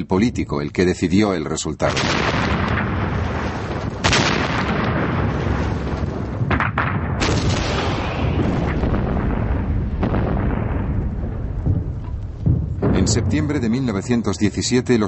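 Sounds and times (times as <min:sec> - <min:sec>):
continuous rumble of gunfire: 0:01.9 - 0:13.5
heavy gun blasts: 0:01.9 - 0:13.9.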